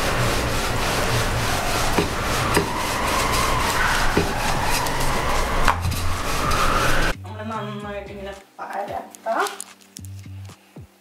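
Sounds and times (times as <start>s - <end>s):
rolling pin rubbing dough: 0.0s - 7.1s.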